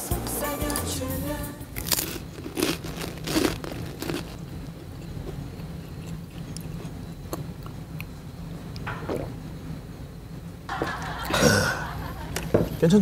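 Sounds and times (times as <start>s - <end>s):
crackers crunching while chewed: 1.7s - 8.1s.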